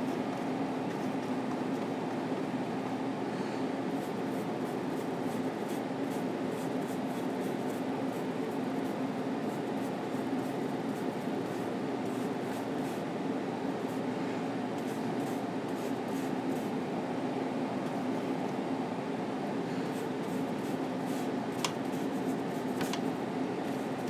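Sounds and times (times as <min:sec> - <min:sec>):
low room hum: 0:00.0 - 0:24.0
paintbrush scratching on panel: 0:04.0 - 0:13.0, 0:19.9 - 0:23.1.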